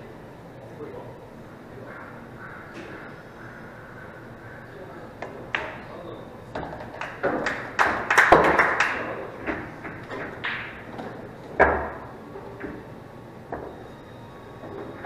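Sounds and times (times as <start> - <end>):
pool balls clacking: 5.1 - 13.9, 14.5 - 15.0.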